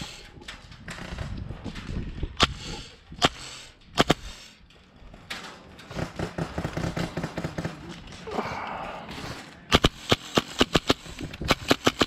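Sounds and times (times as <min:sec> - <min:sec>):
fast string of quiet shots: 0:09.7 - 0:12.0.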